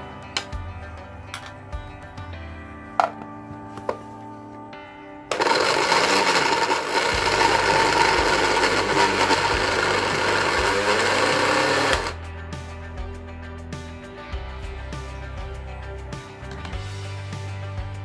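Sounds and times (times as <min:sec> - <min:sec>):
electric food chopper running: 0:05.3 - 0:12.2.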